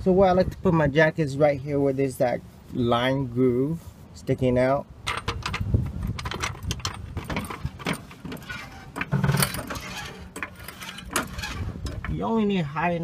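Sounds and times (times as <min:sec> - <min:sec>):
metal floor jack clanking: 0:05.1 - 0:12.1.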